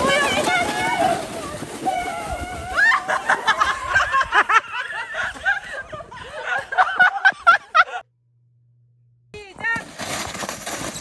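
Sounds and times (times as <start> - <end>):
people laughing: 2.7 - 8.1.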